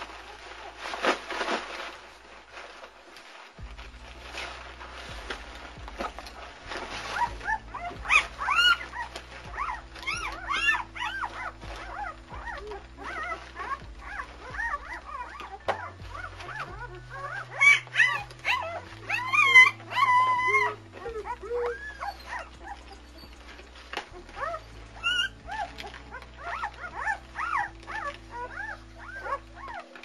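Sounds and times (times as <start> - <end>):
puppies whimpering and squealing: 0.0 - 30.0.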